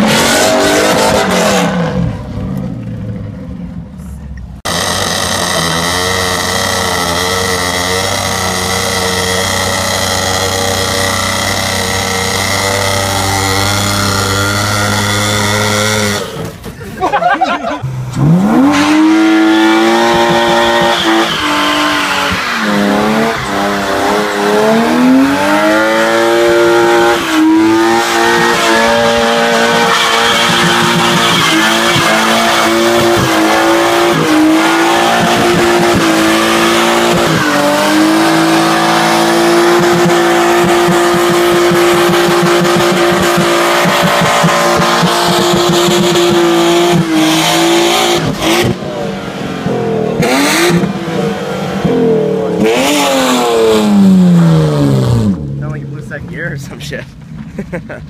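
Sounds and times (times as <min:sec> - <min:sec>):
car engine revving: 0:00.0 - 0:16.8, 0:17.7 - 0:56.8
tyre squealing: 0:04.7 - 0:47.4.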